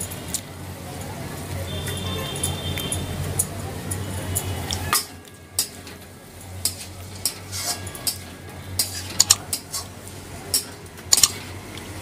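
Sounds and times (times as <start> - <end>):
metal spatula scraping a pan: 6.6 - 10.7.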